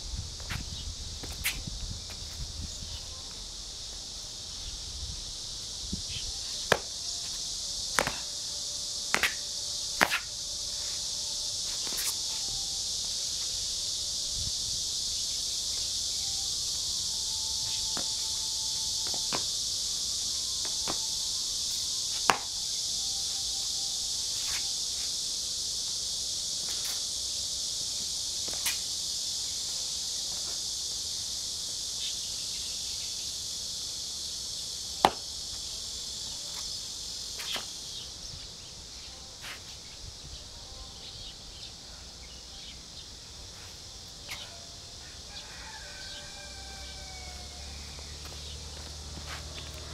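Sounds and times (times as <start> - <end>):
high insect chorus: 0.0 - 49.9
feet stamping on concrete: 6.6 - 8.4, 9.1 - 9.4, 17.7 - 19.6, 20.6 - 21.1, 22.2 - 22.5, 35.0 - 35.3, 48.0 - 49.9.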